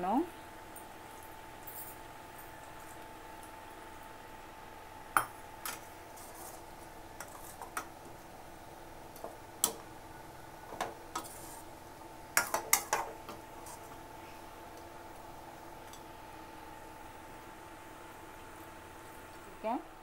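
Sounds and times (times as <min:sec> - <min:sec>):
background hum: 0:00.0 - 0:20.0
spatula scraping a steel pot: 0:11.1 - 0:11.7.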